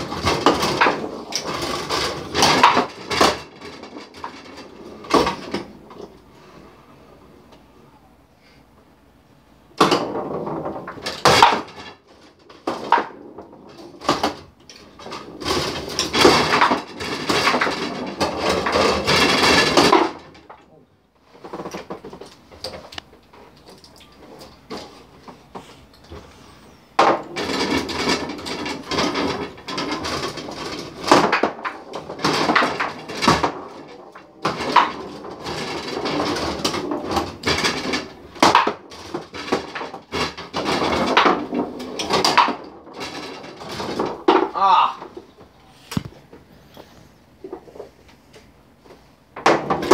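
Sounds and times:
ball knocking on foosball table: 9.8 - 11.9, 49.4 - 49.9
metal rods clattering: 9.9 - 20.7, 21.4 - 45.6.

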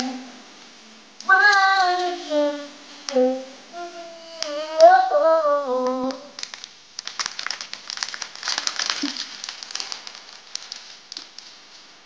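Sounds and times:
man's high wavering vocal note: 1.3 - 6.4
plastic bottle crinkling: 6.4 - 11.9.

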